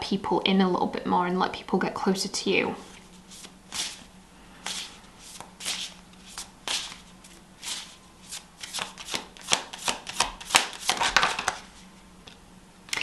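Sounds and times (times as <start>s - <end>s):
cards shuffling: 2.9s - 4.0s, 4.6s - 11.8s.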